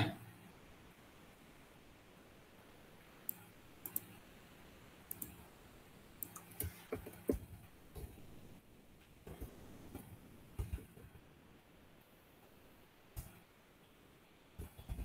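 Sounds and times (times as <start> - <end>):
computer mouse clicks: 3.2 - 4.2, 5.1 - 5.5, 6.2 - 8.2
keyboard typing: 5.1 - 5.5, 6.2 - 7.5.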